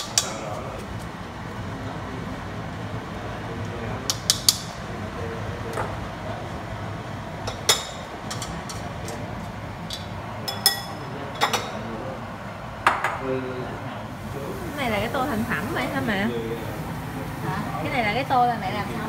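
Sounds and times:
steady low hum: 0.0s - 19.0s
clinking kitchenware: 9.9s - 11.8s.

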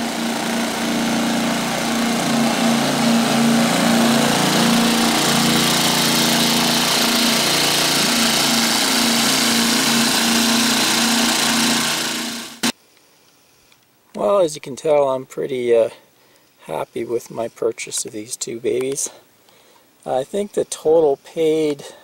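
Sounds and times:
generators running: 0.0s - 12.7s.

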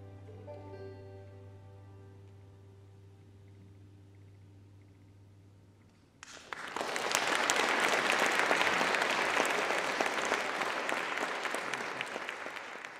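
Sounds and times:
audience applause: 6.2s - 12.9s.

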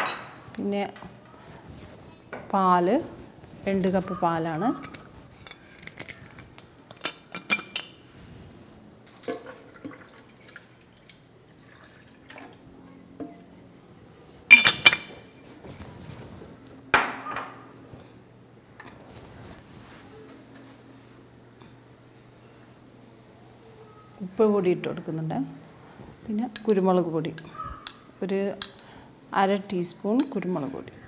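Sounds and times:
dishes clattering: 0.0s - 0.4s, 6.9s - 8.0s, 14.5s - 15.4s, 17.0s - 17.7s.

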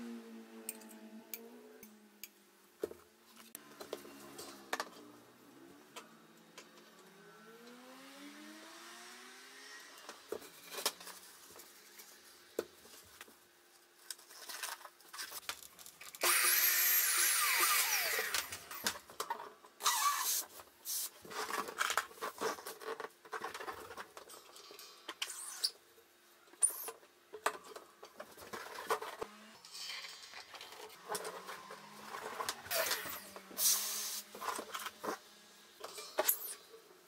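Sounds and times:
electric balloon inflator blowing: 16.2s - 18.9s, 31.9s - 34.4s.

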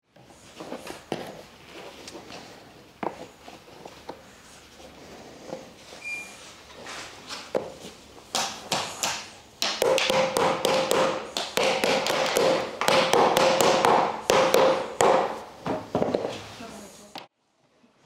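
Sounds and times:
rubber mallet tapping wood: 8.3s - 15.4s.

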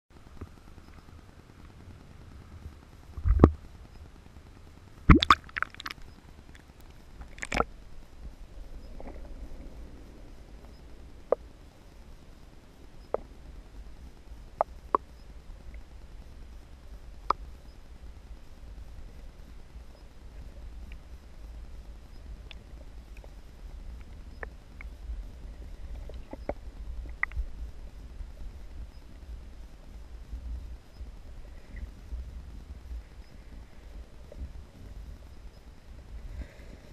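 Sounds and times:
low gurgling rumble: 0.2s - 36.9s
muffled water splashes: 5.0s - 6.5s, 7.1s - 36.9s
sharp underwater clicks: 5.0s - 7.7s, 26.0s - 27.4s.

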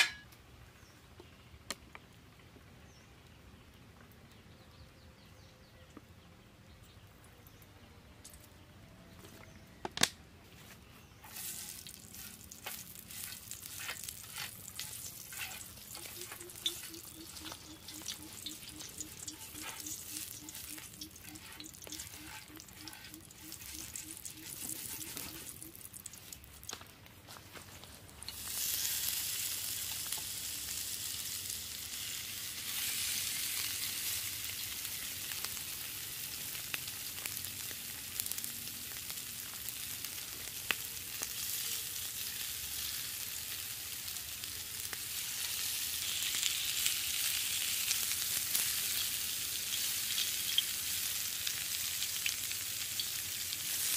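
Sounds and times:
skewers sizzling on grill: 0.0s - 0.2s, 10.6s - 53.9s
oil crackling on grill plate: 11.2s - 53.9s.

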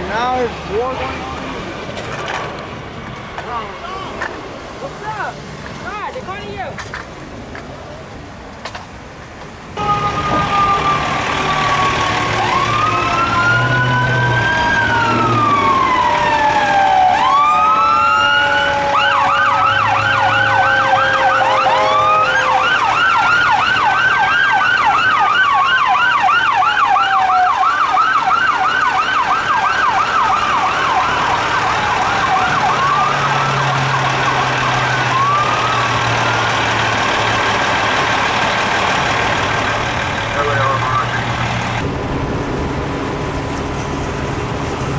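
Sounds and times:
ambulance siren: 9.8s - 44.4s.

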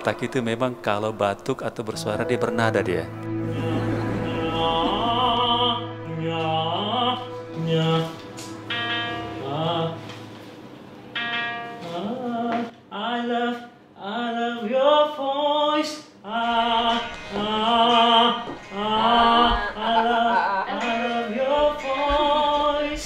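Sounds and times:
person singing slow melody: 3.2s - 10.2s, 11.8s - 23.0s.

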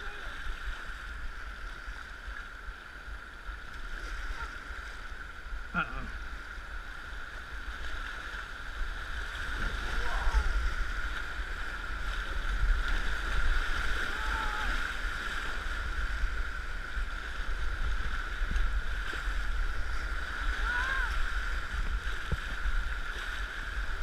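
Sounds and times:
whitewater rapids rushing: 8.4s - 24.0s.

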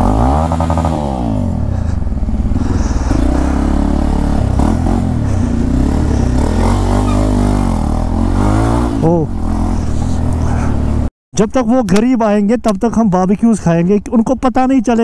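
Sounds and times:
motorcycle engine running: 0.0s - 11.1s.

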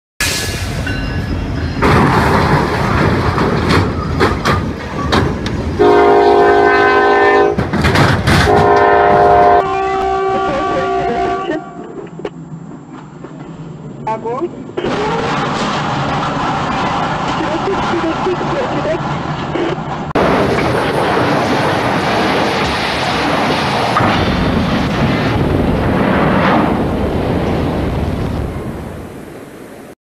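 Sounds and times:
metal crunching and banging: 1.8s - 5.4s, 7.5s - 9.3s, 14.8s - 26.4s
train air horn blasts: 5.8s - 7.6s, 8.5s - 11.9s.

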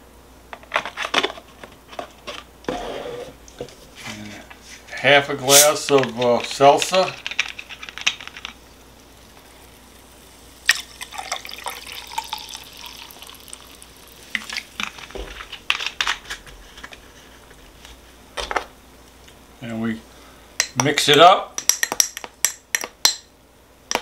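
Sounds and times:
seltzer pouring into glass: 9.6s - 14.8s.

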